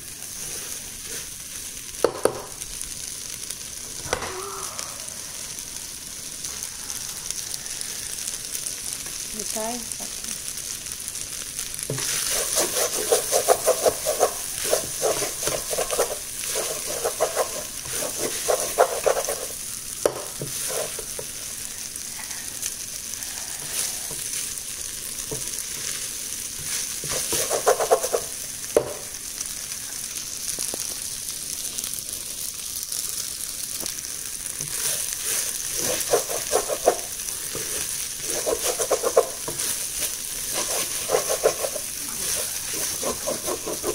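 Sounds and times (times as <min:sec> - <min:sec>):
rice sizzling in a wok: 0:00.0 - 0:43.9
wooden spatula scraping a wok: 0:00.2 - 0:01.6, 0:11.9 - 0:21.4, 0:25.3 - 0:29.1, 0:34.6 - 0:43.9.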